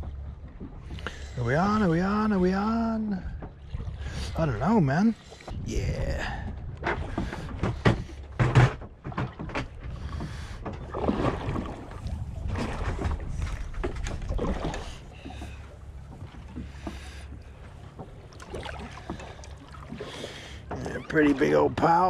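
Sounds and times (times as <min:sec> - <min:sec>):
low rumble: 0:00.0 - 0:19.9
water sloshing against boat hull: 0:00.0 - 0:22.0
sharp knocks: 0:06.8 - 0:10.9.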